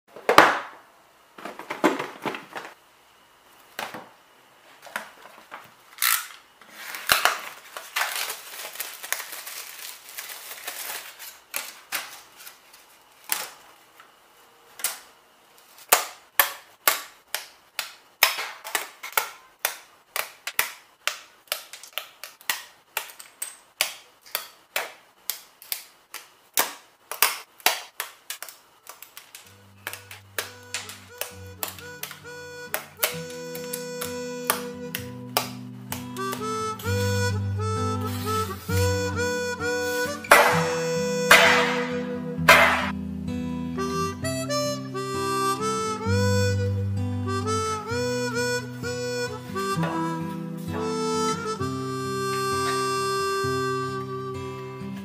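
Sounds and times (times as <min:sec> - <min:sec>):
packaging rustling: 0:04.7 - 0:14.0, 0:27.1 - 0:34.0
wooden pieces snapping out: 0:15.9 - 0:36.5, 0:40.3 - 0:43.0.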